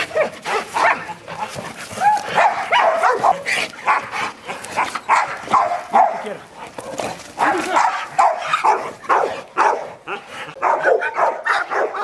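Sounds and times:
dog barking and yelping: 0.0 - 12.0.

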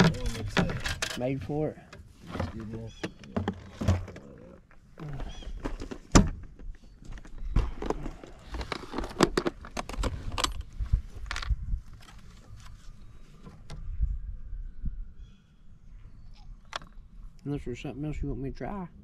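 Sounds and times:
fishing tackle rummaged through: 7.2 - 12.2.

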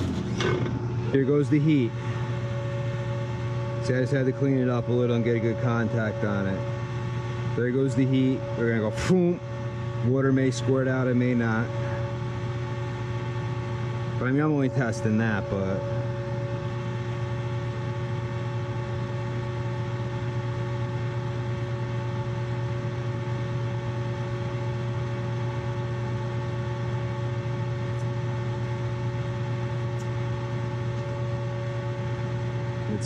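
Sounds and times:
hvac unit humming: 0.0 - 33.0
constant high tones: 1.1 - 18.3.

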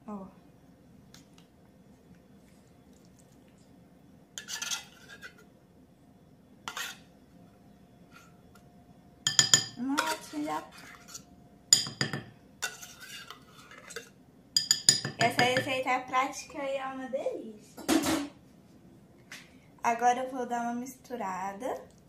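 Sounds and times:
spoon clinking on glass bowl: 9.3 - 9.8, 11.8 - 12.3, 14.6 - 15.7.

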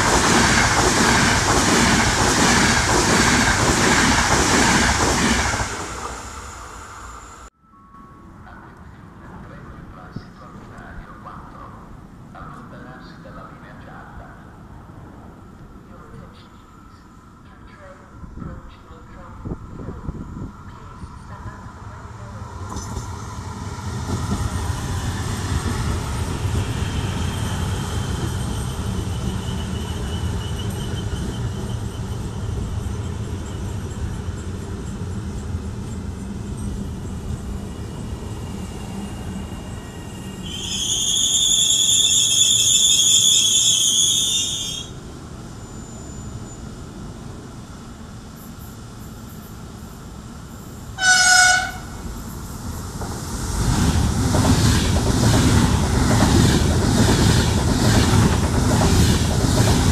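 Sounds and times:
train rumbling into platform: 0.0 - 59.9
shrill high whistle tone: 29.0 - 32.5, 38.6 - 45.0
train horn toot: 51.0 - 52.0.

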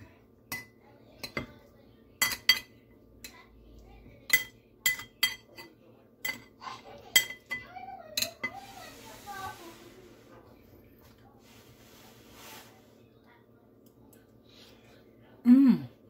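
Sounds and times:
cutlery clinking on ceramic plate: 2.2 - 2.8, 4.3 - 8.6.

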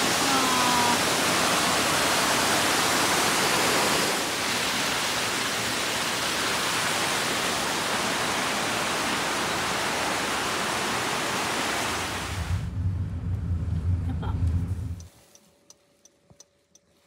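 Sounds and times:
waterfall rushing: 0.0 - 12.7.

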